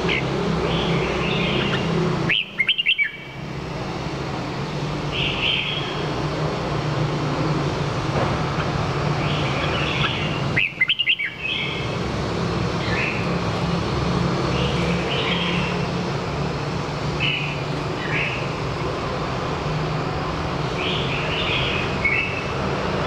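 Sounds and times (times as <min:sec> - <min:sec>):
bird singing bright phrases: 0:00.0 - 0:03.4, 0:05.0 - 0:06.1, 0:09.2 - 0:12.0, 0:14.4 - 0:15.9, 0:17.2 - 0:18.5, 0:20.7 - 0:22.6
steady low hum: 0:00.0 - 0:23.0.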